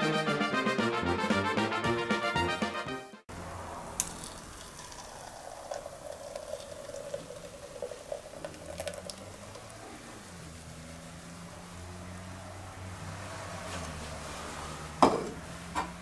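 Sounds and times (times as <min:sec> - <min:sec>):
milk pouring into a pan: 0:04.0 - 0:10.3.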